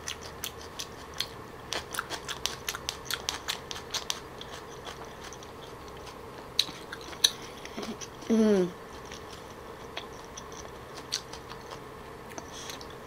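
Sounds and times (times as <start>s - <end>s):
chewing food: 0.0s - 8.3s, 8.9s - 13.0s.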